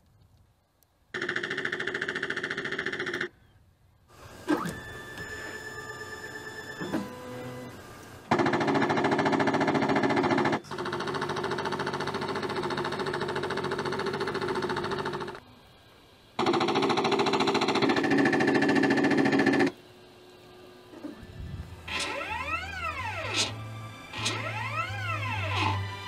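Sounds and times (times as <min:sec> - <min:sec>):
rapid machine-gun fire: 0:01.2 - 0:03.3, 0:08.3 - 0:15.4, 0:16.4 - 0:19.7.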